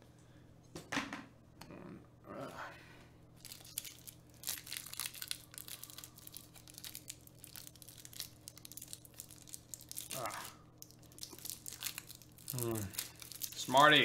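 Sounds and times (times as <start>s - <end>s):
wrapper crinkling and tearing: 3.4s - 14.0s.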